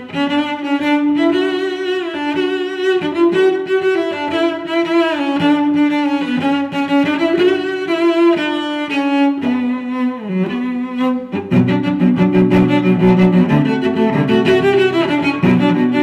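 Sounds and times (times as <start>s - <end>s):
slow bowed string melody: 0.0s - 16.0s.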